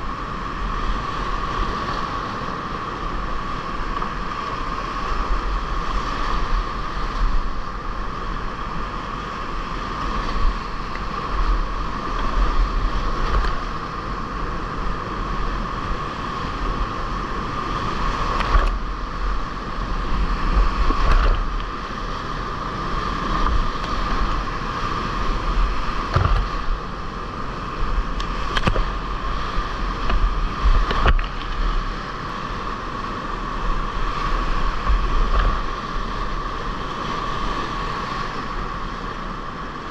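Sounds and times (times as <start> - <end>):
whitewater rapids rushing: 0.0 - 39.9
water splashes: 17.4 - 38.5.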